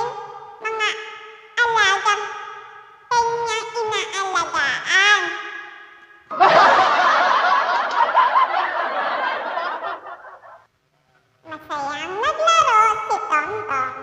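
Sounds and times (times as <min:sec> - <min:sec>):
crowd laughing: 0:06.3 - 0:10.7.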